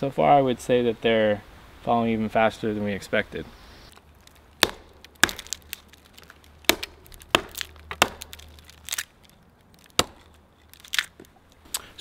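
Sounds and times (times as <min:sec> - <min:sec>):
wood cracking and snapping: 0:03.9 - 0:11.8
hatchet hacking bark: 0:04.6 - 0:05.6, 0:06.7 - 0:08.4, 0:10.0 - 0:10.3.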